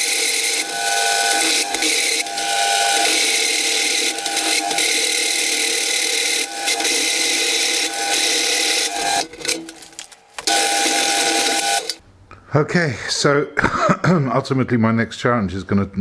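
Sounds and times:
drill press boring steel: 0:00.0 - 0:09.6, 0:10.4 - 0:12.0.

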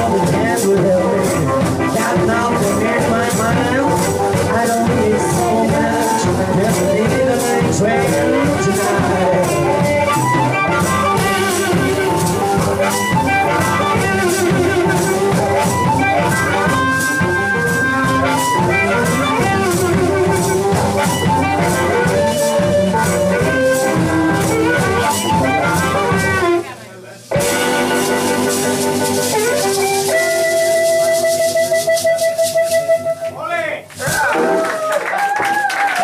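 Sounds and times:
harmonica wailing: 0:00.0 - 0:26.6, 0:27.3 - 0:33.4
guitar chords: 0:00.0 - 0:33.4
maracas shaking: 0:27.2 - 0:35.6.

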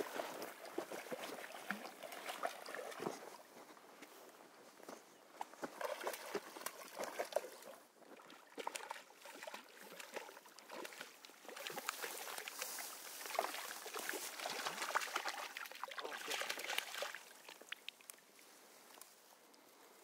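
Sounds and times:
fish splashing at the surface: 0:05.7 - 0:18.2.

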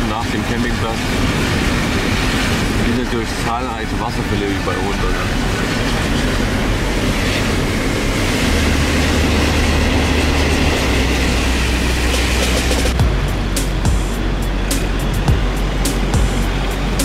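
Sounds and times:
car engine and road rumble: 0:00.0 - 0:17.0
steady rushing noise: 0:00.0 - 0:17.0
background music with a beat: 0:12.1 - 0:17.0.

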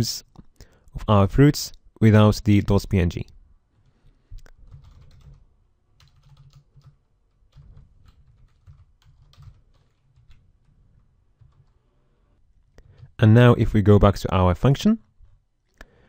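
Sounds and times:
faint keyboard typing: 0:03.2 - 0:13.2.

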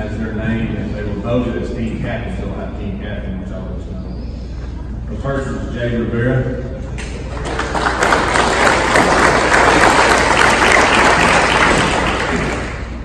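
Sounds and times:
audience applauding: 0:07.2 - 0:13.0.

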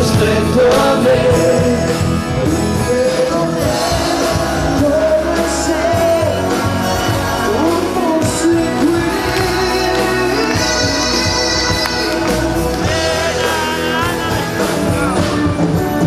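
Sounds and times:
drum kit: 0:00.0 - 0:16.0
electric guitar: 0:00.0 - 0:16.0
keyboard: 0:00.0 - 0:16.0
person singing: 0:00.0 - 0:16.0.

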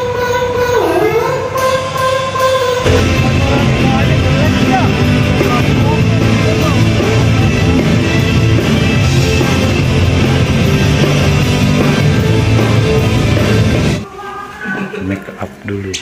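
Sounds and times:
drum kit: 0:02.8 - 0:14.0
electric guitars: 0:02.8 - 0:14.0.

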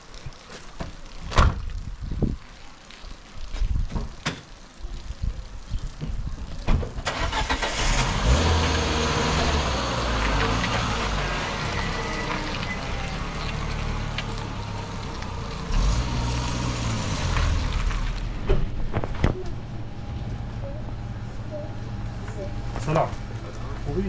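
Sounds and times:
car engine starting and running: 0:06.9 - 0:21.1
car pulling away over wet ground: 0:07.0 - 0:18.5.

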